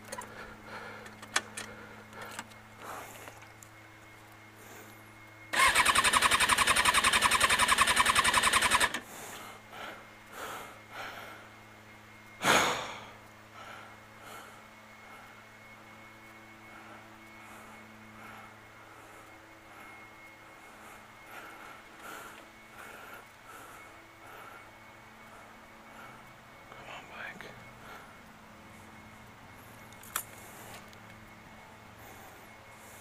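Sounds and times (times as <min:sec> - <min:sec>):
electric starter cranking engine: 0:05.5 - 0:09.1.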